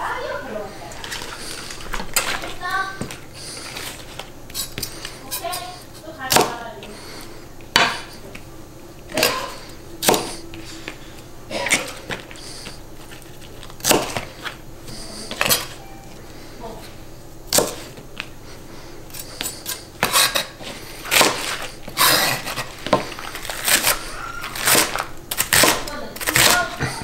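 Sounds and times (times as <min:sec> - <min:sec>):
knife chopping on cutting board: 0:06.3 - 0:06.6, 0:07.7 - 0:08.1, 0:09.1 - 0:10.4, 0:13.8 - 0:14.6, 0:17.5 - 0:18.0, 0:21.1 - 0:24.0, 0:24.6 - 0:26.8.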